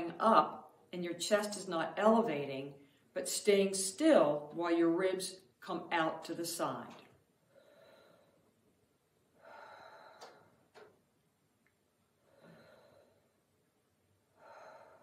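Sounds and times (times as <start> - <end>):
woman breathing deeply: 7.4 - 11.0, 12.2 - 13.6, 14.2 - 15.0.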